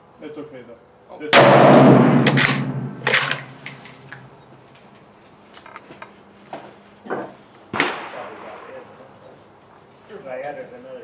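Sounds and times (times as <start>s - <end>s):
rifle shot with echo: 1.4s - 3.6s, 7.7s - 8.8s
rifle bolt clacking: 2.2s - 3.8s.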